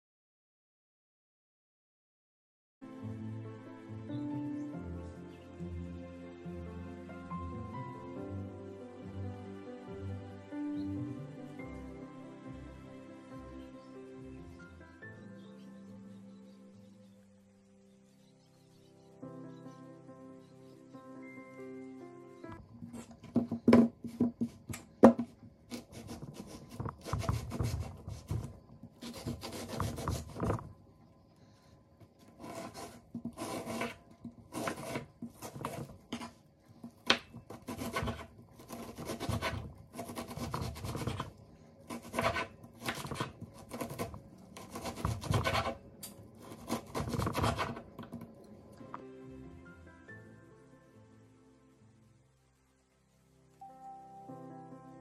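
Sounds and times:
knife cutting onion on board: 22.9 - 30.7, 32.4 - 48.3
knife knocking on cutting board: 23.2 - 25.4.

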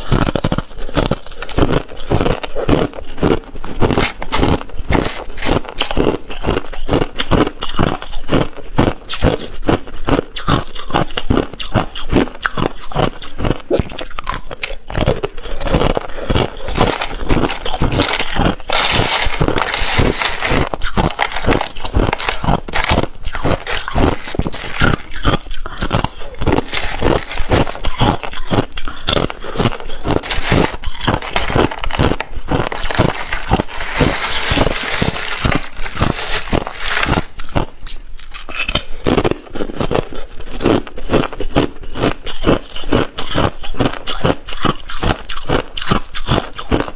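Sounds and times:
crushed ice being chewed: 0.0 - 46.9
hand rummaging through ice flakes: 15.6 - 38.3.

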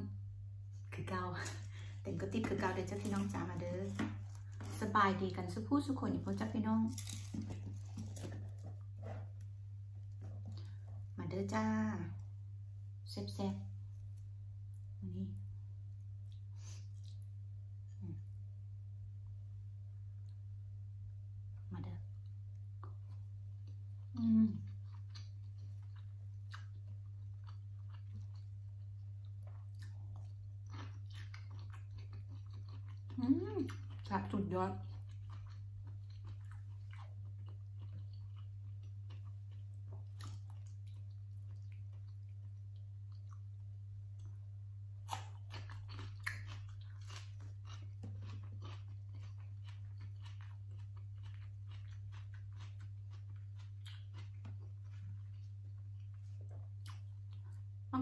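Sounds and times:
steady low hum: 0.0 - 58.0
chewing food: 6.4 - 11.2, 14.1 - 17.4, 22.1 - 57.8.

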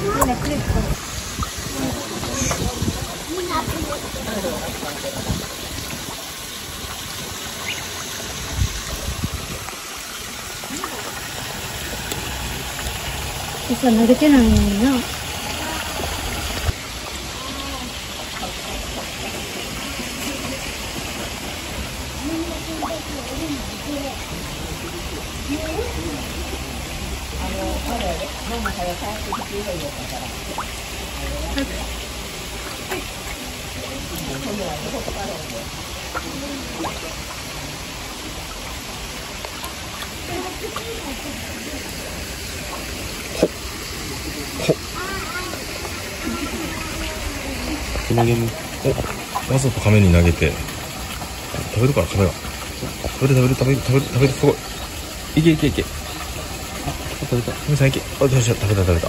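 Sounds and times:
fish churning pond surface: 0.0 - 59.0
water rushing: 0.0 - 59.0
faint voices: 13.7 - 50.8.

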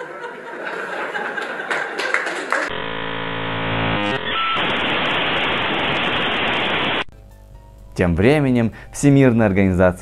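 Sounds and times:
electronic buzzing drone: 2.7 - 7.1
static hiss: 2.7 - 7.1.

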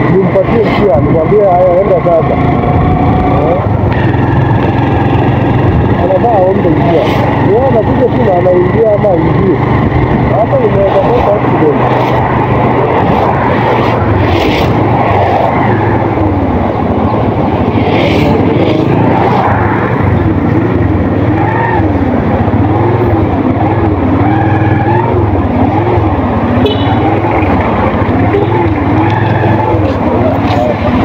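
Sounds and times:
motorcycle engine running: 0.0 - 31.0
air rushing: 11.7 - 21.2.

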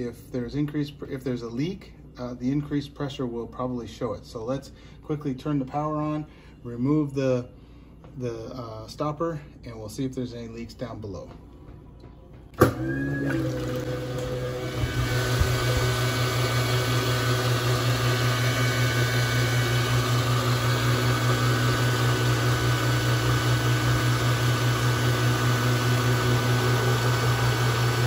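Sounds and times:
garbage disposal motor hum: 12.5 - 28.0.

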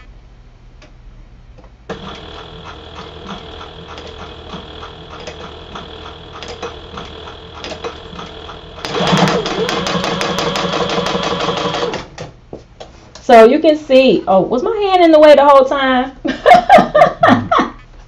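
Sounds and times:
sewing machine stitching: 1.9 - 12.2.

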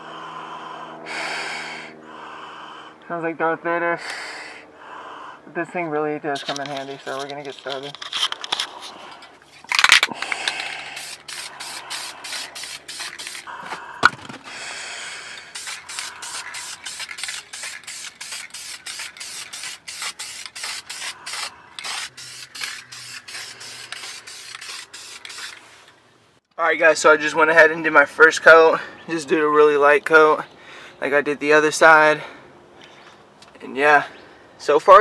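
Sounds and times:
spray paint can hissing: 10.5 - 13.6, 15.3 - 25.6.

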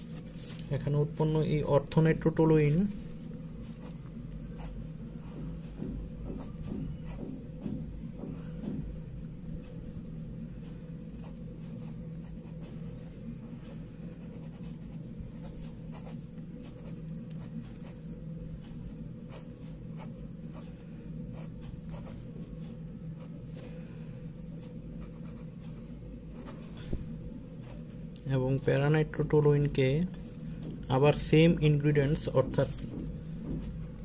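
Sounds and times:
low hum: 0.0 - 34.0
pen scratching on paper: 14.1 - 18.0, 19.3 - 22.3, 25.0 - 25.8.

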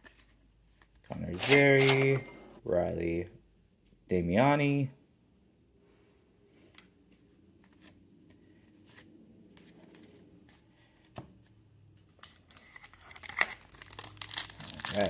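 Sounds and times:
foil wrapper crinkling: 12.3 - 15.0.

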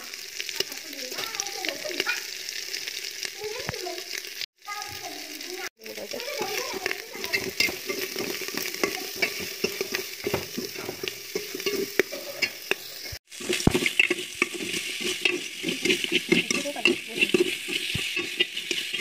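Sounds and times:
meat sizzling: 0.0 - 19.0
metal spoon scraping a pot: 6.3 - 19.0.

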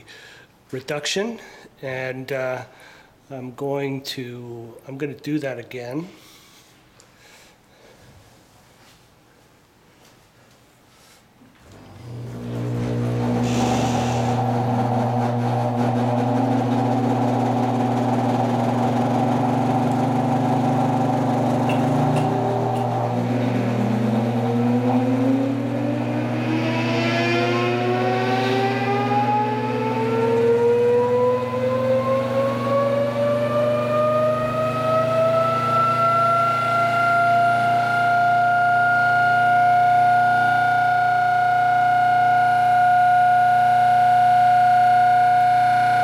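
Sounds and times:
electric motor humming: 11.6 - 46.0
motor whine rising in pitch: 11.6 - 46.0.

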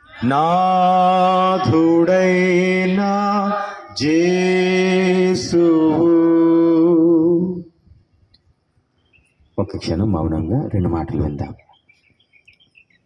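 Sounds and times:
person chanting a prayer: 0.0 - 7.7.

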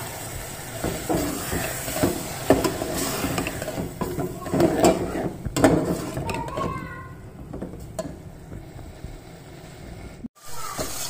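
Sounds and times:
masala hissing in pot: 0.0 - 11.0
metal spoon scraping pot: 0.8 - 9.0.

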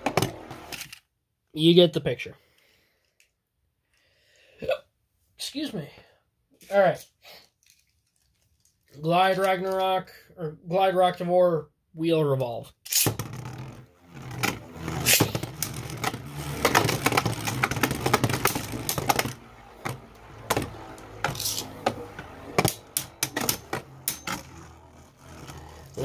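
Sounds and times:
spinning tops whirring: 12.9 - 26.0.

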